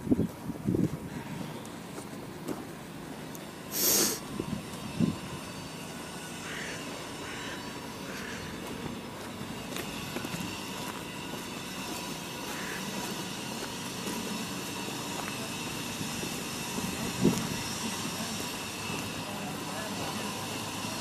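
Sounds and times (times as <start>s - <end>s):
street traffic rumble: 0.0s - 21.0s
short loud hiss: 3.7s - 4.3s.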